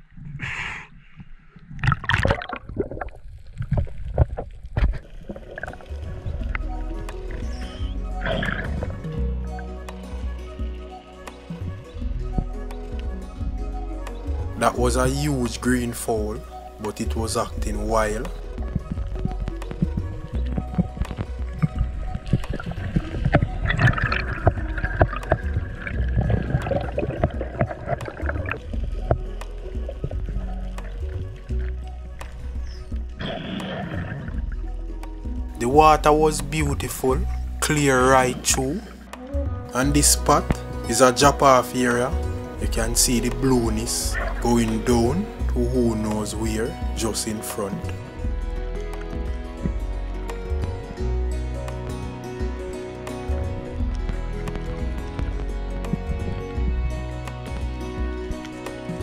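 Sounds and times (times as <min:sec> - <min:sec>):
low water gurgling: 0:00.0 - 0:15.6, 0:16.2 - 0:42.8, 0:43.6 - 0:46.0
sea water splashing: 0:01.3 - 0:09.8, 0:16.3 - 0:35.5.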